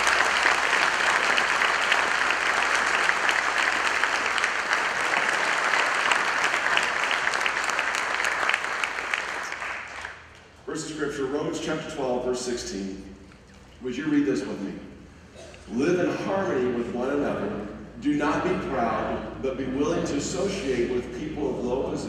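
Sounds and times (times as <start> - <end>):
crowd applauding: 0.0 - 10.4.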